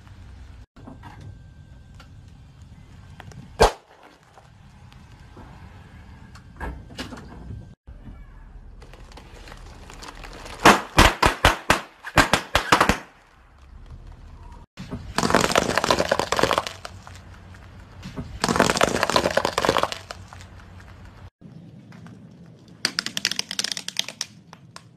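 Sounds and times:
tyre crushing objects: 0:08.8 - 0:12.8, 0:13.4 - 0:21.3.

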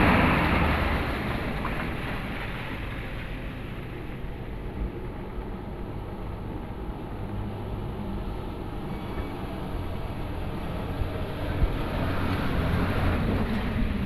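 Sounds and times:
diesel truck engine driving through mud: 0:00.0 - 0:14.0.

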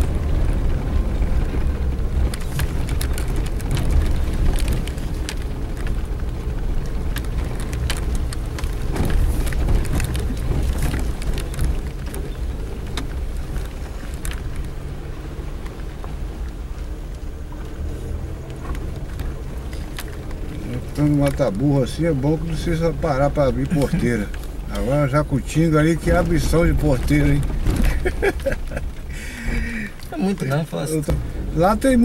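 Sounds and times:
vehicle knocks and rattles: 0:00.0 - 0:30.1, 0:31.0 - 0:32.0
engine and road rumble: 0:00.0 - 0:32.0.

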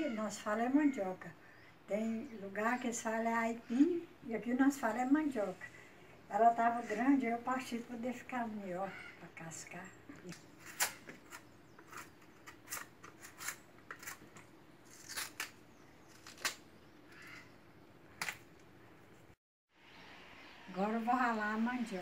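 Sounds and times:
knife scraping root skin: 0:10.3 - 0:16.6.

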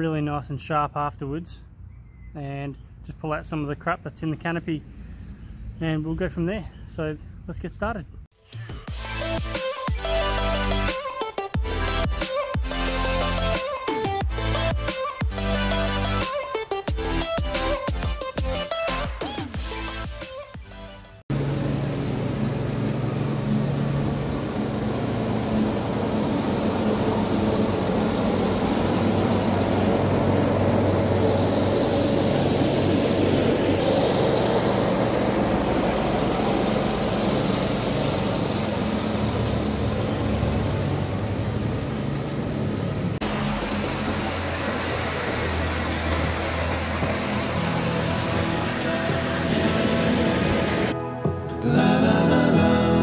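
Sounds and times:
lawn mower engine running: 0:21.3 - 0:51.0.

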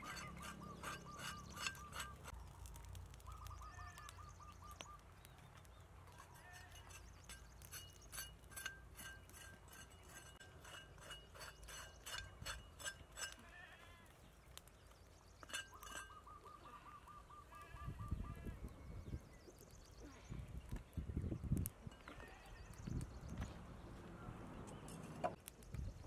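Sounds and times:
bird trilling: 0:00.0 - 0:02.4, 0:15.4 - 0:18.5
knife scraping dried hide: 0:00.0 - 0:02.4, 0:06.1 - 0:13.6.

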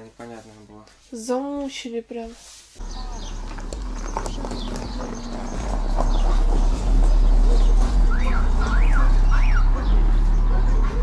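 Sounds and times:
deep bass music from car stereo: 0:02.8 - 0:11.0
car alarm siren sweeps: 0:07.9 - 0:09.9.

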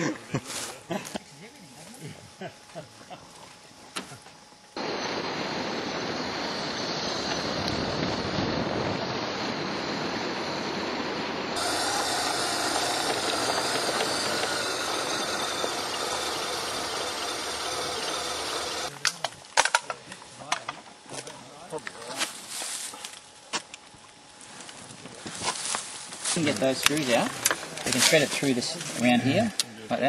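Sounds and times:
motorcycle engine: 0:11.6 - 0:18.9.

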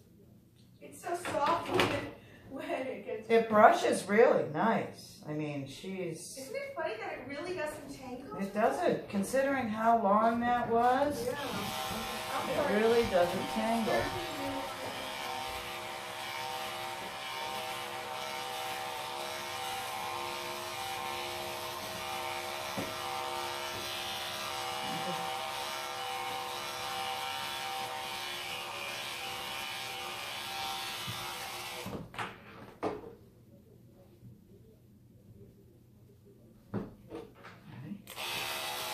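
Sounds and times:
electric clippers buzzing: 0:10.7 - 0:32.0, 0:38.1 - 0:38.9.

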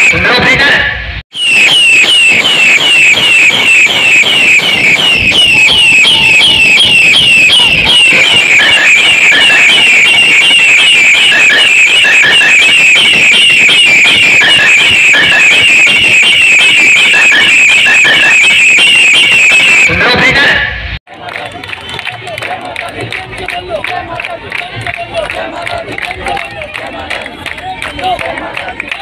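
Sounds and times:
warbling alarm tone: 0:00.0 - 0:21.0
crowd noise: 0:00.0 - 0:29.0.

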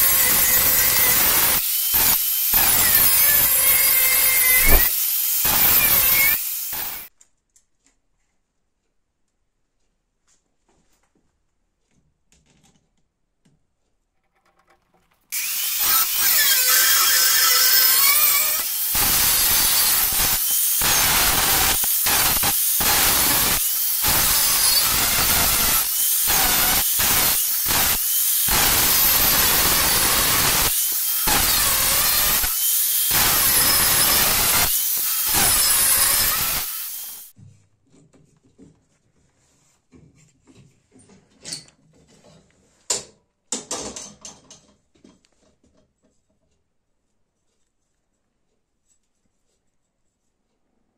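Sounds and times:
angle grinder grinding steel: 0:00.0 - 0:07.1, 0:15.3 - 0:37.3.

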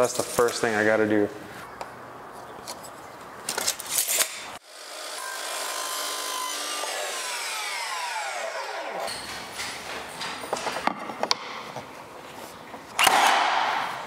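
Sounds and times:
miter saw cutting: 0:04.0 - 0:09.3
saw blade whine spinning down: 0:04.7 - 0:09.2.

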